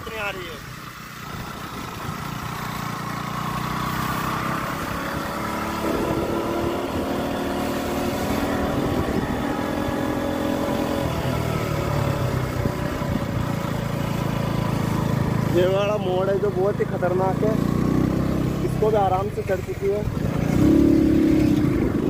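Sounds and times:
motorcycle engine running: 0:00.0 - 0:22.0
wind on microphone: 0:04.4 - 0:13.8, 0:20.0 - 0:22.0.

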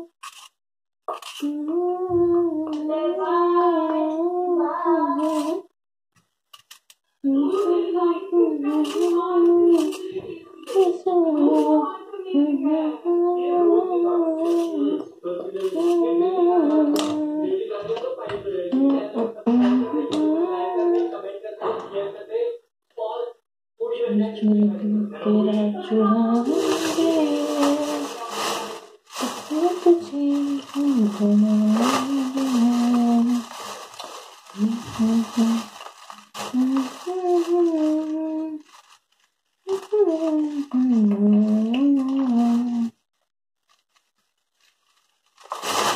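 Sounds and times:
child humming: 0:01.4 - 0:05.6, 0:29.3 - 0:33.5, 0:39.7 - 0:42.9
person singing slow melody: 0:01.4 - 0:05.6, 0:07.2 - 0:17.7, 0:18.7 - 0:21.2, 0:24.4 - 0:28.5, 0:29.2 - 0:33.6, 0:34.5 - 0:38.6, 0:39.7 - 0:43.0.

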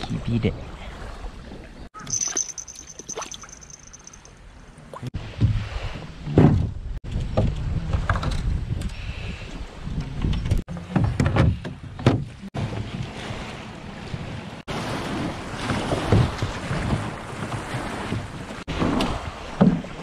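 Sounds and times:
wind on microphone: 0:05.2 - 0:11.6.

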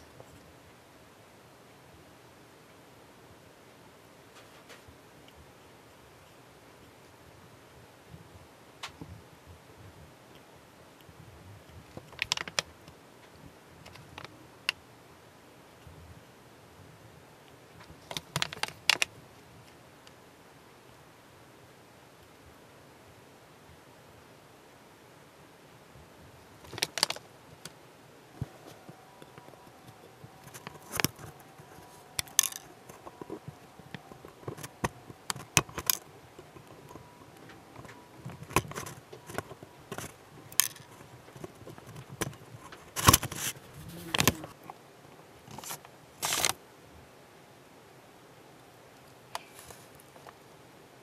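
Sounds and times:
light handling ticks: 0:10.3 - 0:14.8, 0:26.5 - 0:27.8, 0:28.4 - 0:44.8.

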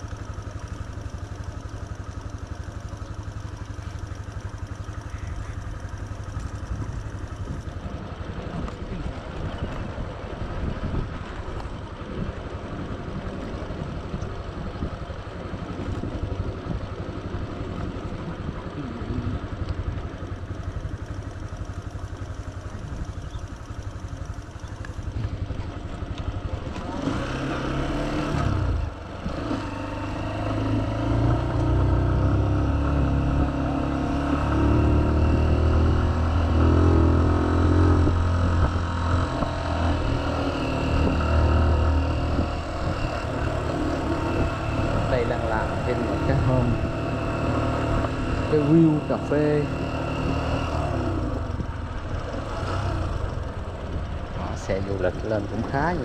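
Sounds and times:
motorbike engine running: 0:00.0 - 0:56.0
wind rumble on microphone: 0:06.7 - 0:20.5, 0:34.5 - 0:47.1.

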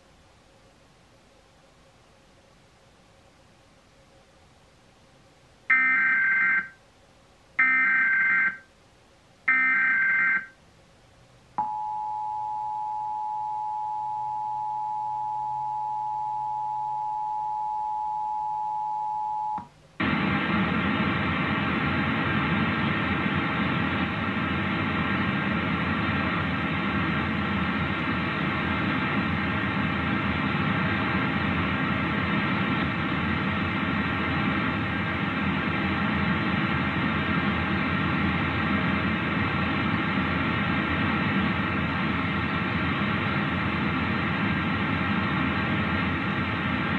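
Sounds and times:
two-tone attention signal: 0:05.7 - 0:06.8, 0:07.6 - 0:08.6, 0:09.5 - 0:10.5
loud steady buzzing: 0:20.0 - 0:46.9.

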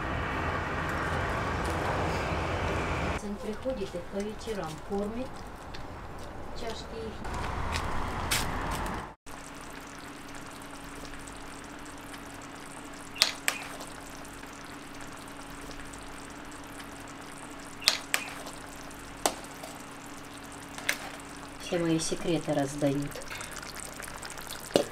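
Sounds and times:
pot simmering with hiss: 0:09.3 - 0:24.9.

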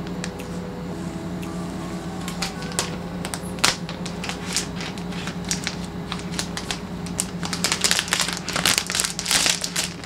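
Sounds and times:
plastic wrap crinkling: 0:02.4 - 0:10.0.

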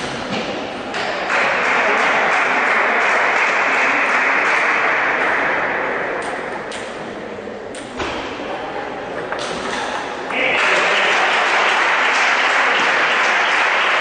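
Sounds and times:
spectators applauding: 0:01.3 - 0:05.2, 0:10.3 - 0:14.0.

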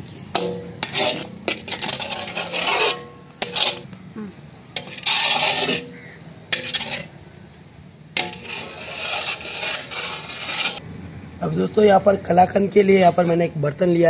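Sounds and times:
metal spatula scraping iron pan: 0:00.0 - 0:03.9, 0:04.7 - 0:07.2, 0:08.1 - 0:10.8.

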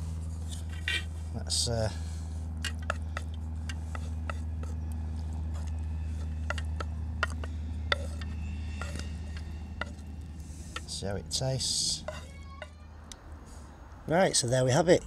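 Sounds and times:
low hum: 0:00.0 - 0:14.2
utensil scraping frying pan: 0:00.4 - 0:01.2, 0:02.5 - 0:04.8, 0:05.5 - 0:12.8.

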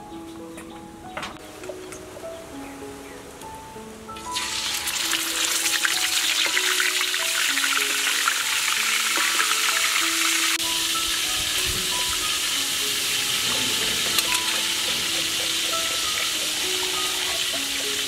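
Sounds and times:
fish sizzling in hot oil: 0:04.2 - 0:18.0.

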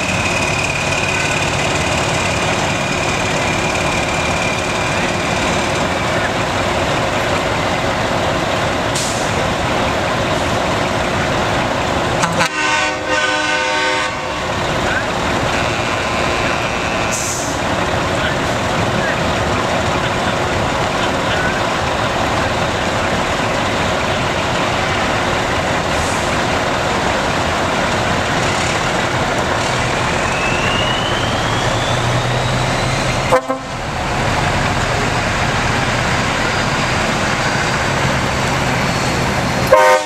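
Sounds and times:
heavy trucks driving past: 0:00.0 - 0:40.0
truck horn toot: 0:12.2 - 0:14.4, 0:15.5 - 0:17.3, 0:33.2 - 0:33.8, 0:39.7 - 0:40.0.

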